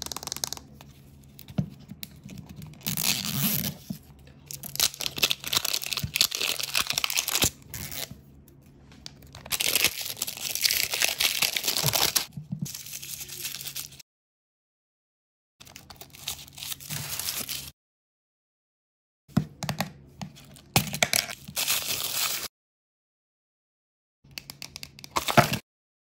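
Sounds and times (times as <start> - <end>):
plastic film crinkling: 4.5 - 8.1, 9.3 - 14.0.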